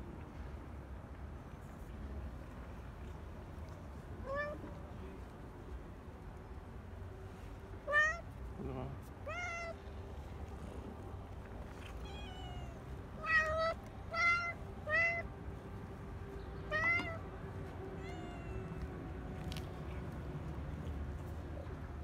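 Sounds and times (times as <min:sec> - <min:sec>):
cat meowing: 0:04.2 - 0:04.6, 0:07.8 - 0:08.3, 0:09.2 - 0:09.8, 0:11.8 - 0:15.3, 0:16.7 - 0:17.2, 0:17.9 - 0:18.9.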